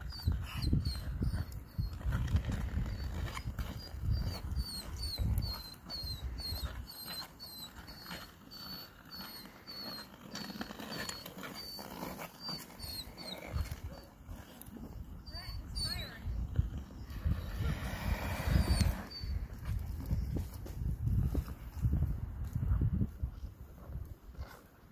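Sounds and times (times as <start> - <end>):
dog whining: 3.8 - 14.2, 18.5 - 19.4.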